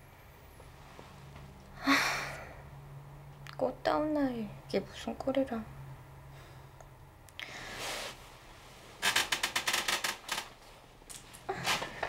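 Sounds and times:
bedclothes rustling: 0:07.5 - 0:09.0.

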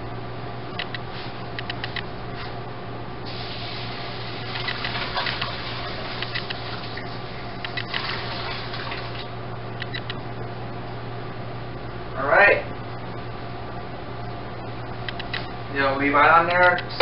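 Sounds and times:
water pouring and splashing: 0:04.4 - 0:07.1, 0:08.0 - 0:09.3.

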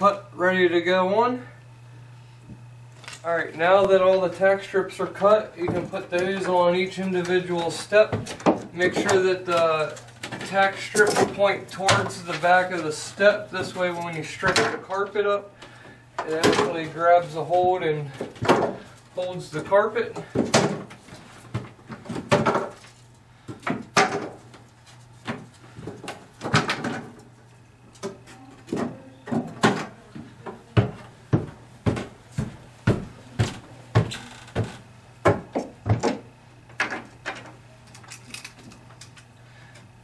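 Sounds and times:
faint steady hum: 0:00.0 - 0:40.0
footsteps on wooden steps: 0:28.7 - 0:36.3.

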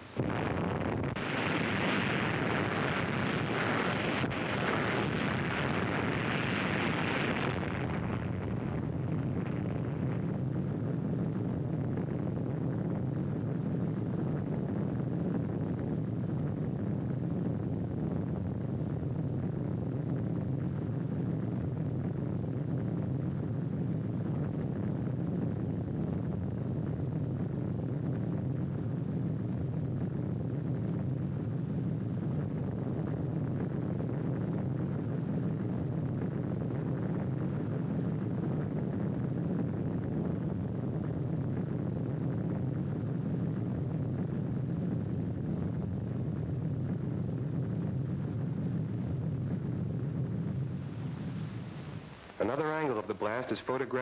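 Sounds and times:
steady low rumble: 0:00.0 - 0:54.0.

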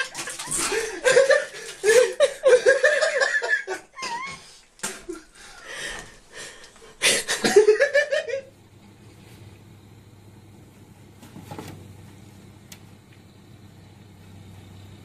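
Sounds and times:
people laughing hard: 0:00.0 - 0:05.4, 0:07.0 - 0:08.5.

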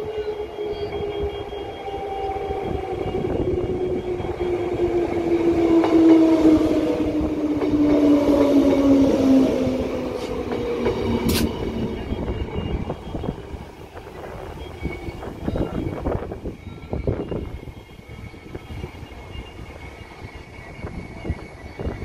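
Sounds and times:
electric train motor whine: 0:00.0 - 0:22.0
wheels rumbling on rails: 0:02.3 - 0:22.0
sharp click: 0:11.2 - 0:11.6.

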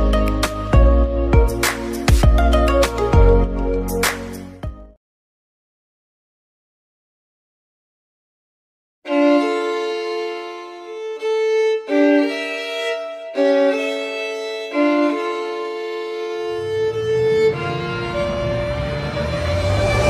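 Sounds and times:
deep low rumble: 0:16.4 - 0:20.0.

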